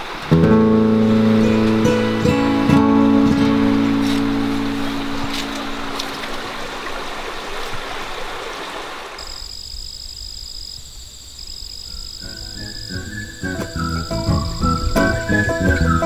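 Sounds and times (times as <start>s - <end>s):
rushing stream water: 0.0s - 9.3s, 12.2s - 16.0s
music notes: 0.3s - 7.3s, 12.2s - 16.0s
high-pitched insect trill: 9.2s - 15.6s.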